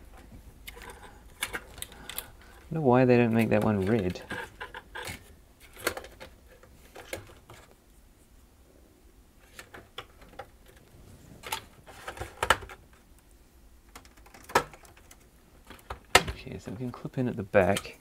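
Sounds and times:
plastic parts clicking and knocking: 0.0 - 7.7, 9.4 - 13.1, 13.8 - 17.0, 17.6 - 18.0.

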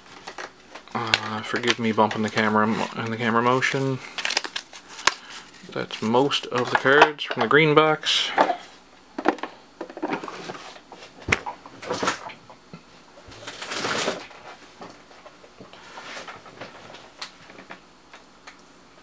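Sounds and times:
cards rustling: 0.1 - 7.0.

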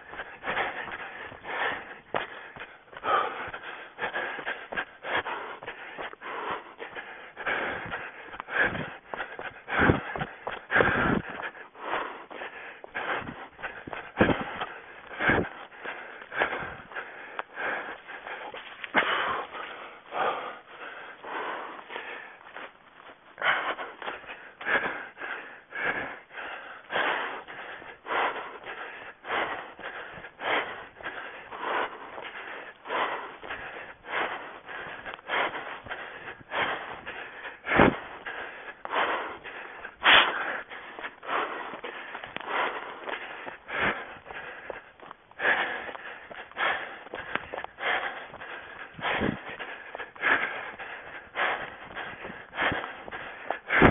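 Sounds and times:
footsteps on forest floor: 0.0 - 7.2, 7.9 - 16.4, 17.0 - 24.7, 38.1 - 53.6
runner breathing hard: 0.0 - 53.9.

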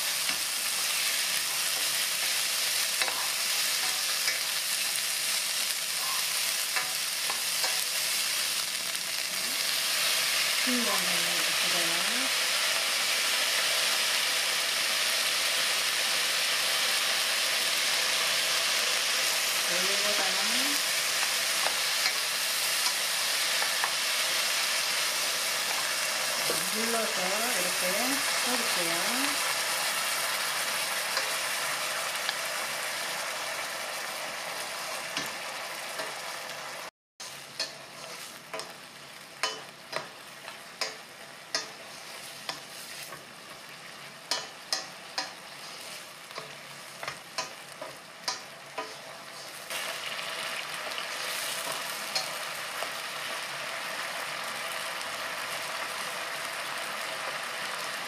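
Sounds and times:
sauce sizzling in a frying pan: 0.0 - 58.0
spatula tapping and scraping pan: 3.0 - 4.5, 37.6 - 38.8, 39.4 - 43.3, 44.3 - 49.5.

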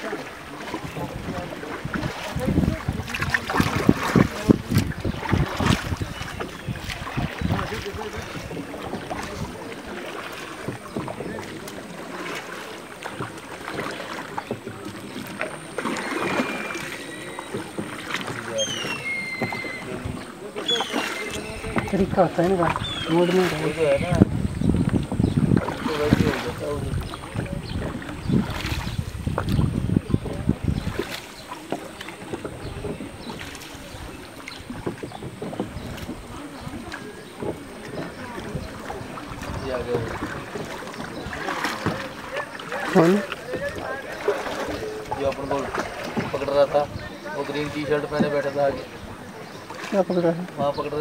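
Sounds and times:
wooden paddles splashing in water: 0.0 - 51.0
wind on microphone: 0.8 - 9.7, 19.0 - 20.4, 21.3 - 31.5, 32.2 - 42.0.

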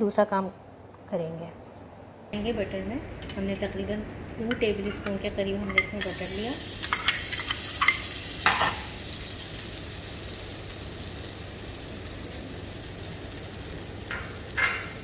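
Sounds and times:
butter sizzling in a pan: 6.0 - 15.0
metal spoon scraping and clicking: 6.8 - 8.0.

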